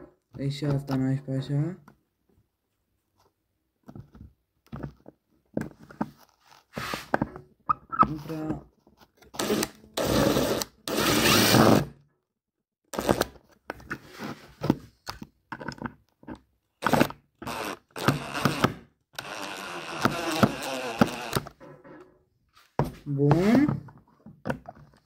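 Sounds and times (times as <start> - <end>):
cordless driver driving screw: 16.8 - 21.5.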